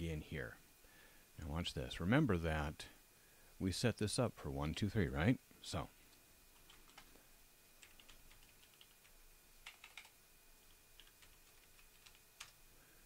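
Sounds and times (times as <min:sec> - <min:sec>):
keyboard keystrokes: 0:09.6 - 0:10.1.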